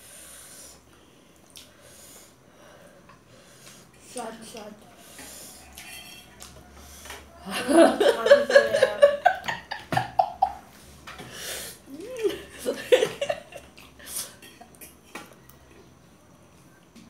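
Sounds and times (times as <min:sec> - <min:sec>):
fork clinking on metal plate: 0:05.7 - 0:06.4
woman laughing: 0:07.4 - 0:10.6, 0:11.9 - 0:13.7.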